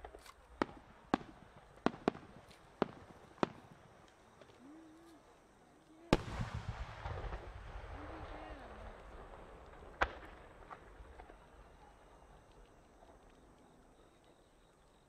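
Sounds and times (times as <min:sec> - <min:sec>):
firework cracks: 0:00.0 - 0:04.6, 0:06.1 - 0:13.5
deep firework boom: 0:06.1 - 0:11.8.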